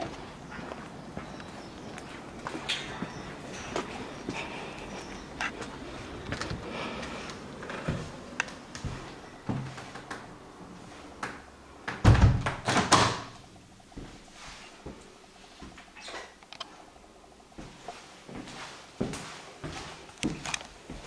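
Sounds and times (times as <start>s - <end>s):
footsteps: 0.0s - 11.2s, 13.9s - 15.9s, 17.5s - 21.0s
door shutting with a thud: 12.0s - 13.4s.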